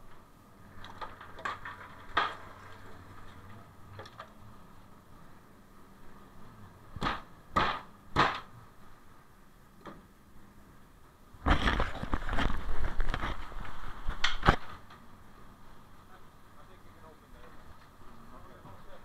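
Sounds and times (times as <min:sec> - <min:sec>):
net clattering and rattling: 0:00.8 - 0:02.9
sharp knocks: 0:07.0 - 0:08.5.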